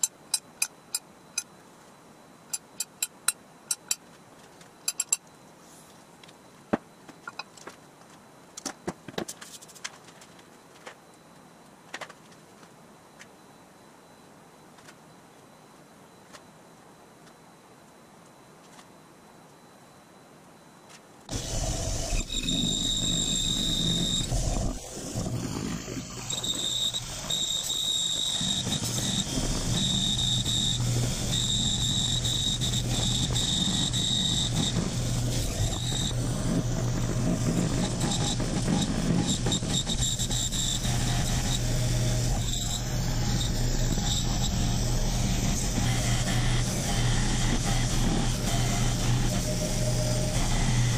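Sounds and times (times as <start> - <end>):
high cutting whine: 21.3 - 50.9
motor hum: 21.3 - 50.9.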